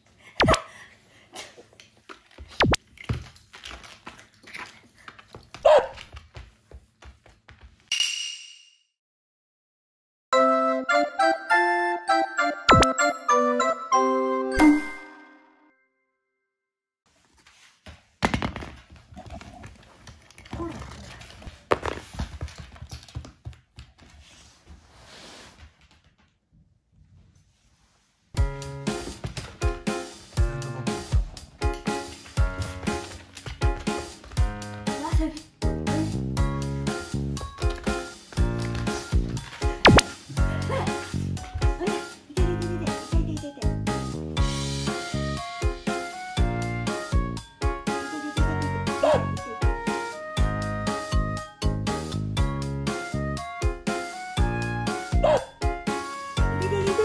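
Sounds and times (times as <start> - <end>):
puppy yelping: 55.2 - 55.6.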